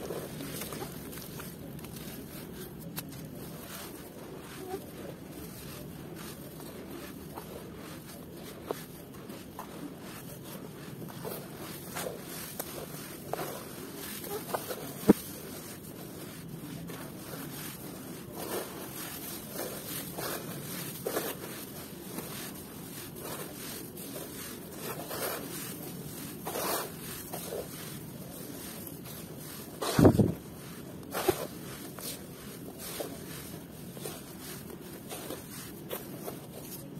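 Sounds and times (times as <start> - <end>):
hands crumbling damp soil: 0.0 - 36.9
heavy soil crunch: 16.8 - 36.9.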